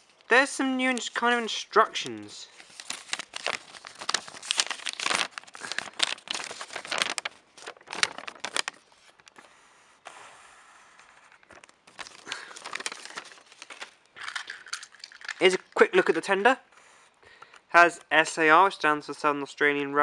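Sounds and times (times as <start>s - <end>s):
paper crinkling and rustling: 0.0s - 9.5s, 11.0s - 16.3s.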